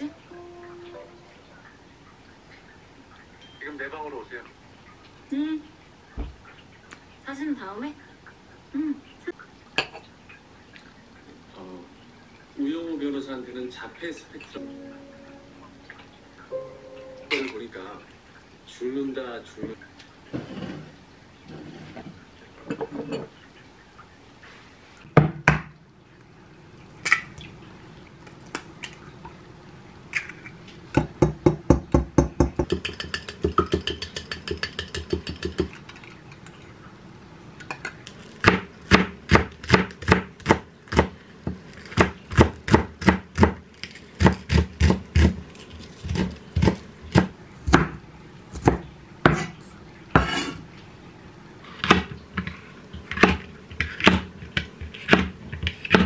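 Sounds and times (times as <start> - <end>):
beating eggs in glass cup: 32.3 - 36.5
knife chopping on wooden board: 46.1 - 48.0.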